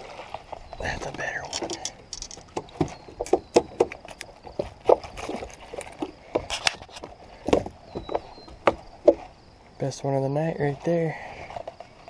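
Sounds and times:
knocks and clicks in boat: 1.1 - 9.2.

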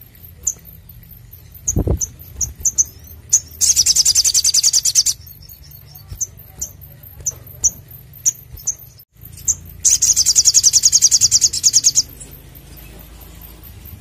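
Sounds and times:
bird chirping: 0.0 - 14.0
fast high bird trill: 0.0 - 14.0.

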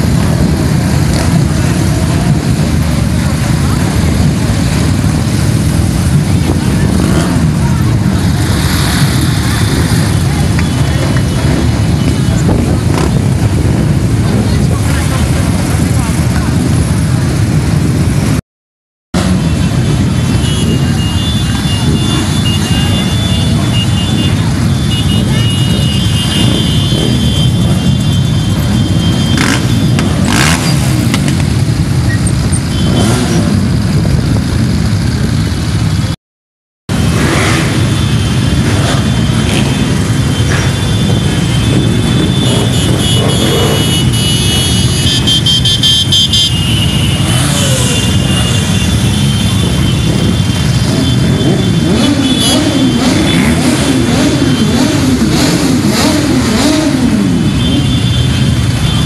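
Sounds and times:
engines revving: 0.0 - 18.4, 19.2 - 36.2, 36.9 - 59.0
motorcycles idling: 0.0 - 18.4, 19.2 - 36.1, 37.0 - 59.0.

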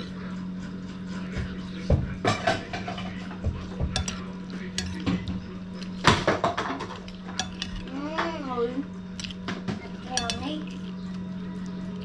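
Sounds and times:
metal spoon clinking on plate: 3.9 - 7.9, 9.9 - 10.9.

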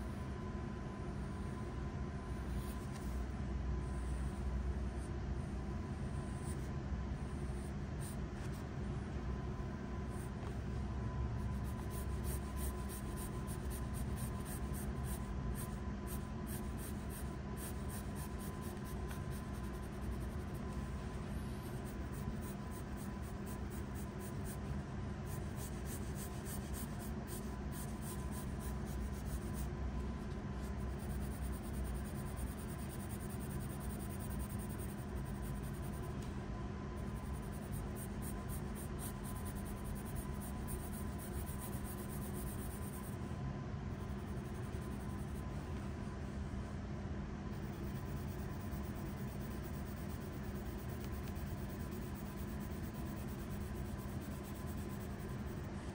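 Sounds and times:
pencil scratching on paper: 11.4 - 36.4, 37.0 - 43.2, 44.0 - 45.8, 47.5 - 55.9.

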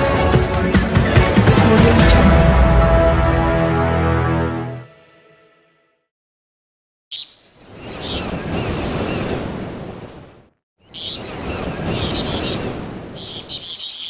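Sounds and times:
high chirping: 13.2 - 14.0.

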